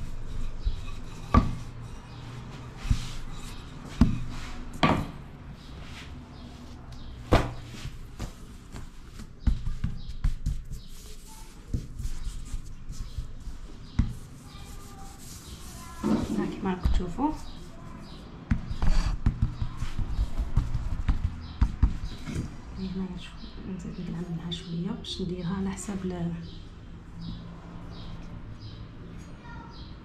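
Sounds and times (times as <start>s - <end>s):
dough rubbing and rolling: 0.0s - 22.6s.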